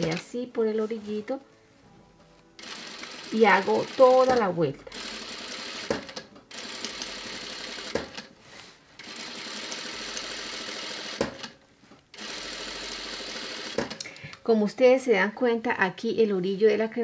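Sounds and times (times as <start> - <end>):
sewing machine stitching: 2.6 - 8.3, 9.0 - 11.6, 12.2 - 14.0.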